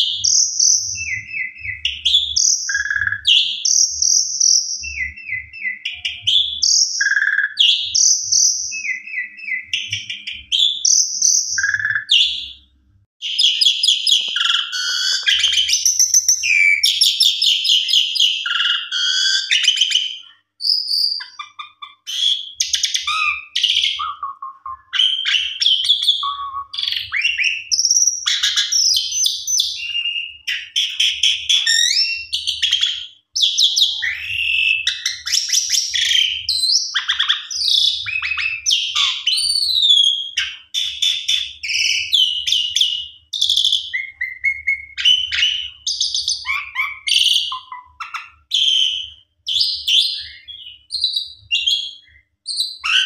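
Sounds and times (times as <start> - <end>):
starling whistling and chattering: 0.0 - 12.5, 13.2 - 53.0.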